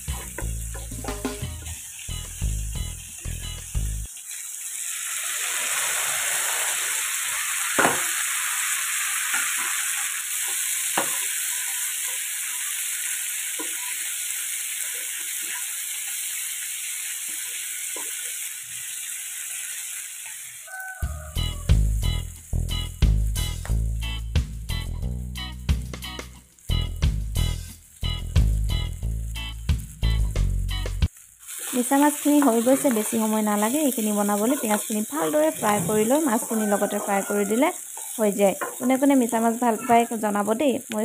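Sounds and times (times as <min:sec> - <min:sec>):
background music: 0:00.0 - 0:04.0, 0:21.4 - 0:31.1
prawns sizzling in hot oil: 0:00.0 - 0:41.0.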